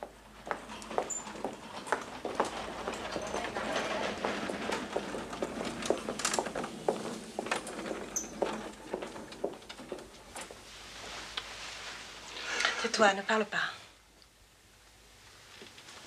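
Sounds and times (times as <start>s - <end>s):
footsteps on hard floor: 0.0s - 11.2s.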